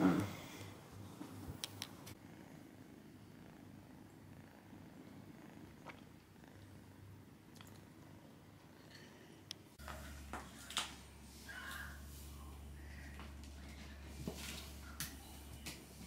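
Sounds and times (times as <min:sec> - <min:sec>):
kitten purring: 0:02.1 - 0:08.2.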